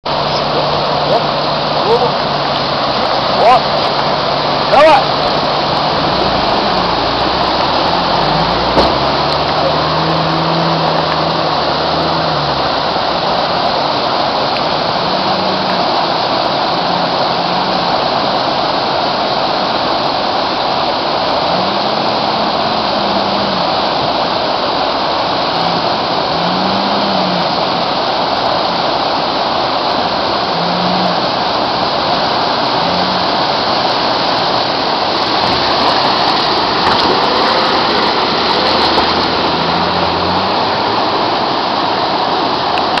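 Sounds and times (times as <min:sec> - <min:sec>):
fast river rushing: 0:00.0 - 0:43.0
suv engine revving: 0:00.1 - 0:18.1, 0:25.0 - 0:27.8, 0:30.3 - 0:41.6.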